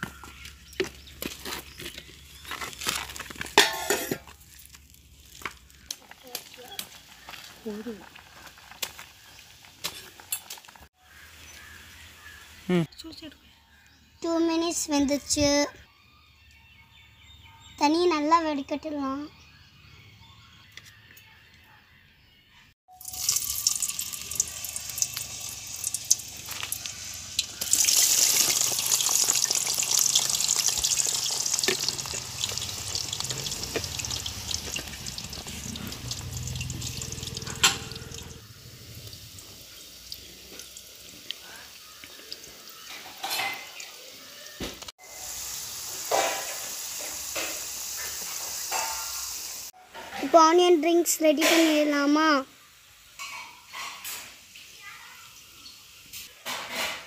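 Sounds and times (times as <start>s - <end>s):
potatoes sizzling in hot oil: 3.3s - 11.8s, 23.0s - 49.7s.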